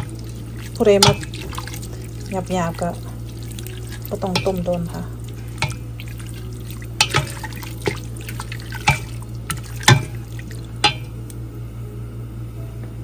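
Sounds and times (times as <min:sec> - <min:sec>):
spoon stirring wet food in pot: 0:00.0 - 0:11.3
steady low hum: 0:00.0 - 0:13.0
spoon knocking against pot: 0:01.0 - 0:01.7, 0:04.3 - 0:04.8, 0:05.6 - 0:05.8, 0:07.0 - 0:08.0, 0:08.8 - 0:10.2, 0:10.8 - 0:11.1.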